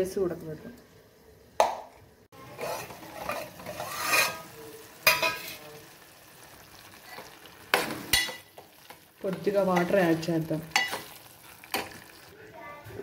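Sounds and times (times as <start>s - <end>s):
tomatoes sizzling: 0.0s - 13.0s
steel lid scraping a pot: 2.6s - 4.5s.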